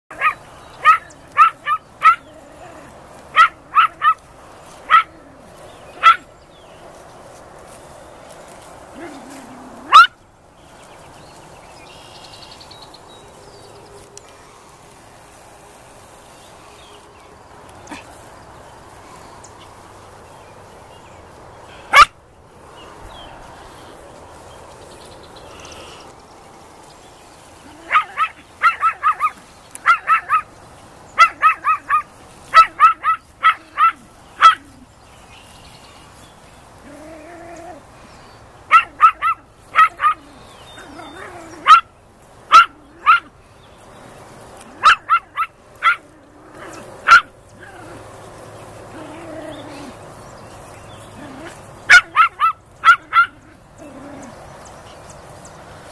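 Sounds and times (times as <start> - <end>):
small dog yapping: 0.1 - 6.3, 8.9 - 10.2, 21.9 - 22.2, 27.6 - 30.5, 31.2 - 34.8, 38.7 - 41.9, 42.5 - 43.3, 44.7 - 48.1, 51.2 - 54.4.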